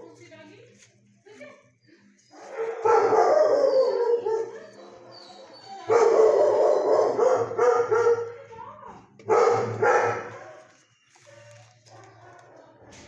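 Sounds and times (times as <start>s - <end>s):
dog howling: 2.6s - 7.6s.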